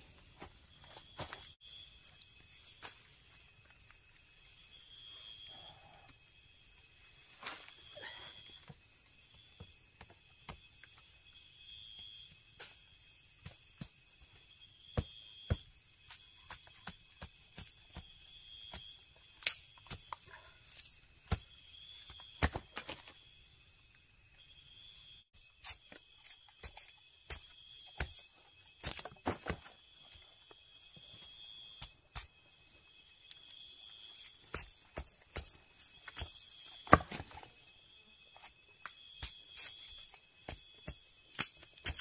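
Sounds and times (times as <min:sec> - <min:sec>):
night insects trilling: 0:00.0 - 0:42.0
machete chopping wooden pole: 0:36.2 - 0:37.4.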